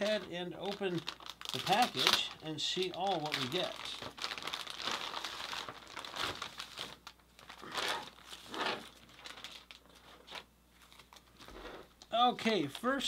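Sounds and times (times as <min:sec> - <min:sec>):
plastic packaging crinkling: 0:00.0 - 0:12.9.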